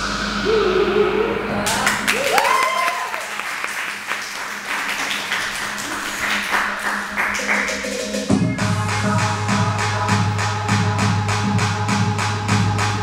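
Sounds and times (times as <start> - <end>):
rising and falling whoop: 0.4 - 3.4
audience clapping and cheering: 1.6 - 8.3.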